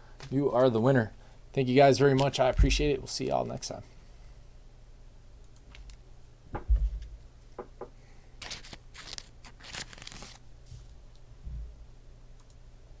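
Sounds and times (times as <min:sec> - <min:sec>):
heavy thump on desk: 0:06.5 - 0:07.1
crinkling rustle: 0:08.4 - 0:11.0
low hum: 0:10.6 - 0:12.2.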